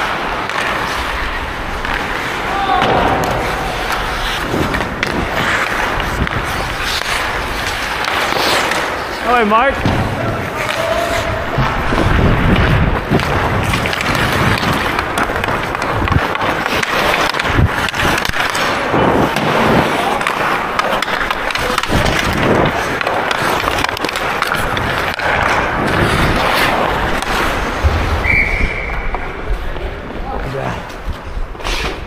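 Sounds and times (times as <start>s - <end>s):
skates scraping ice: 0.0s - 32.0s
referee whistle: 28.2s - 29.0s.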